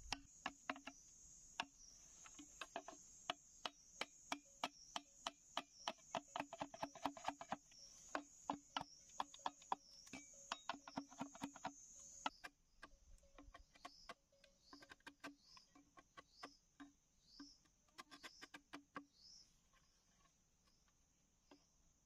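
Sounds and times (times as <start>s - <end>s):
machete chopping bamboo: 0.0s - 1.0s, 3.6s - 16.9s
insect chorus: 0.0s - 22.0s.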